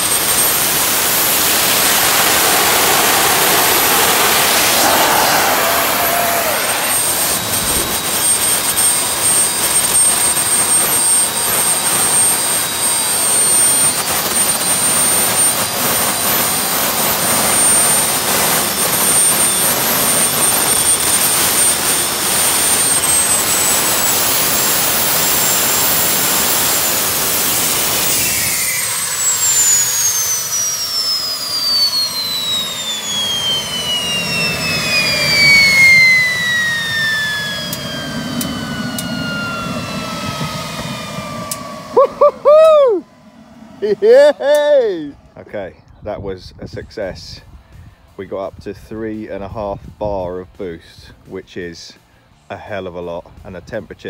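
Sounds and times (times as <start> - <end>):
jet engine roaring: 0.0 - 45.7
turbine whine: 0.0 - 54.0.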